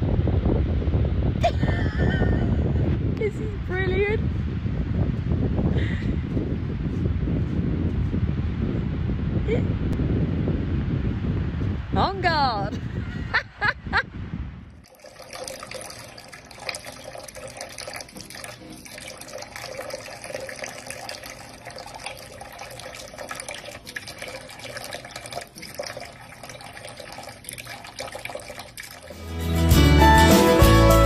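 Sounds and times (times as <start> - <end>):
faucet running into sink: 14.8 - 29.2.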